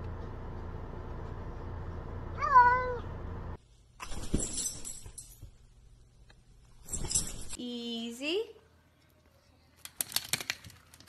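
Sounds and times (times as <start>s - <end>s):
cat meowing: 2.4s - 3.0s.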